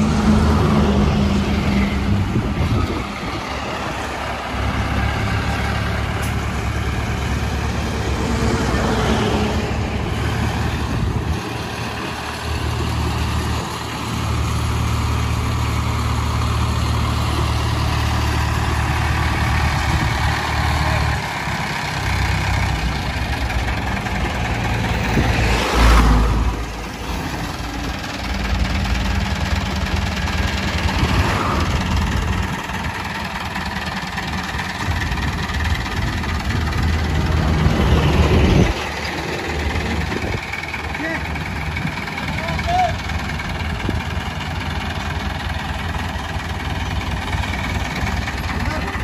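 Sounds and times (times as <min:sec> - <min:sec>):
crane diesel engine running: 0:00.0 - 0:49.0.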